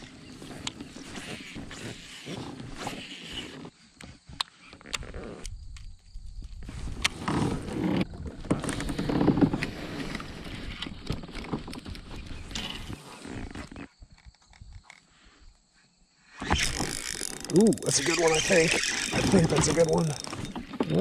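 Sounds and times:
fishing reel clicks: 16.4s - 20.6s.

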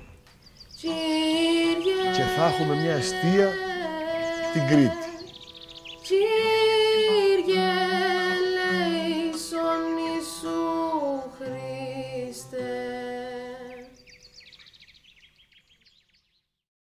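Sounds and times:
faint bird chirps: 0.0s - 6.6s, 13.6s - 16.6s
slow music with vibrato melody: 0.0s - 15.4s.

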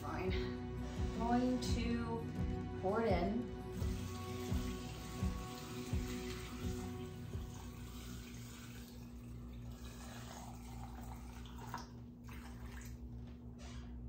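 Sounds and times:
hot water pouring into jar: 3.7s - 13.0s
water splashes and drips: 3.8s - 13.3s.

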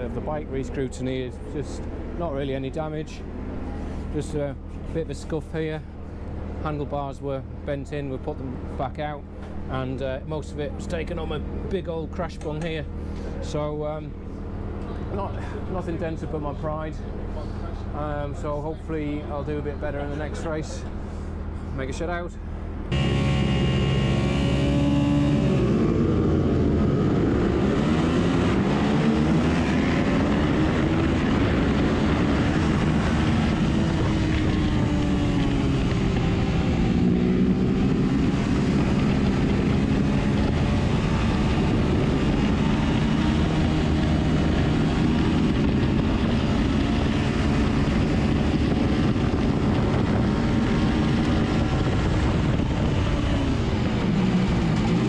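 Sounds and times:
motorcycle engine revving: 22.9s - 55.0s.

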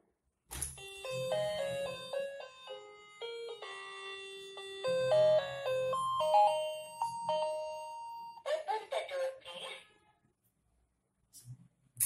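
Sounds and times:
electronic doorbell chime tune: 0.8s - 8.4s.

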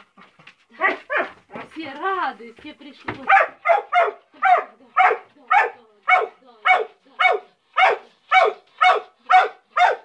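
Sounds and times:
dog barking: 0.8s - 1.4s, 3.3s - 10.0s.

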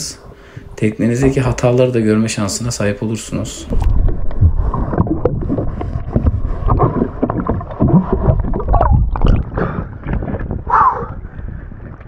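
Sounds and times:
sea water sloshing and gurgling: 3.3s - 12.0s
knocks and splashes: 3.7s - 10.6s.

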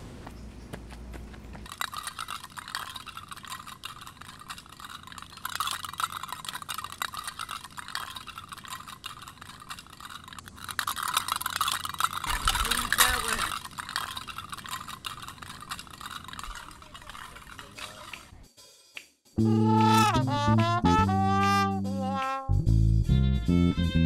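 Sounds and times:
tin cans clattering on asphalt: 1.6s - 18.3s.

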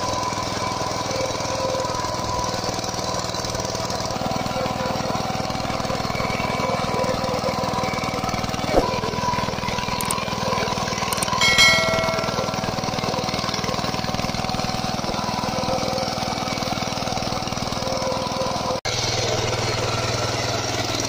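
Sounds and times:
diesel tiller engine running: 0.0s - 21.0s
short electronic chime: 11.4s - 12.8s.

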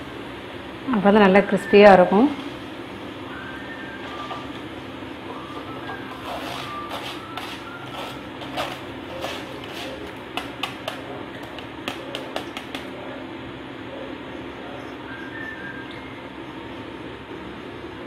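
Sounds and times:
deep-frying sizzle: 1.8s - 13.0s.

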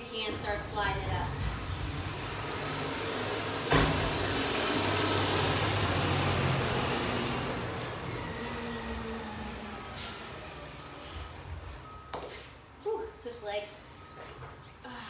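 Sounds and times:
vehicle passing: 0.0s - 12.0s.

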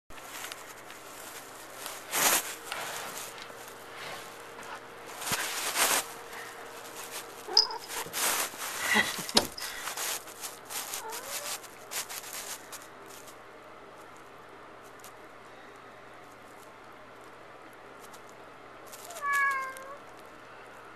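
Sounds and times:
cat meowing: 7.5s - 8.0s, 11.0s - 11.5s, 19.1s - 20.0s.

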